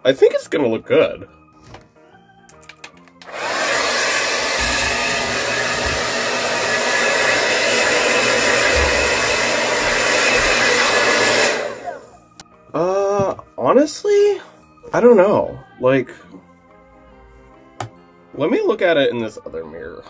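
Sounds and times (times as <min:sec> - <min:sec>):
hair dryer blowing: 0:03.2 - 0:12.2.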